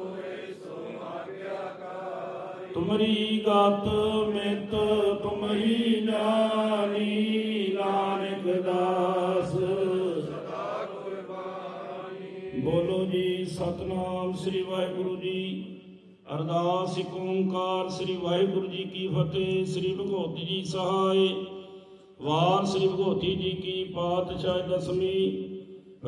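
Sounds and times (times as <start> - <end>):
voices chanting held notes: 0.0 - 3.2, 5.4 - 12.8.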